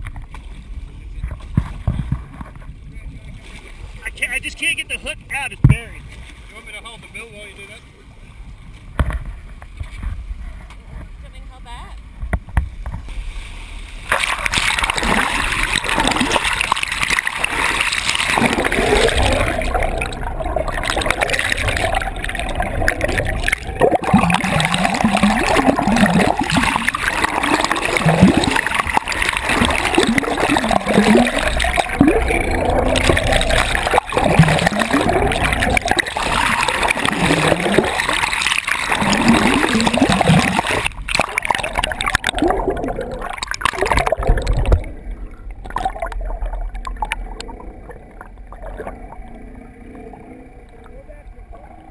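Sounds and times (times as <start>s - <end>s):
seawater rushing underwater: 13.1s - 51.9s.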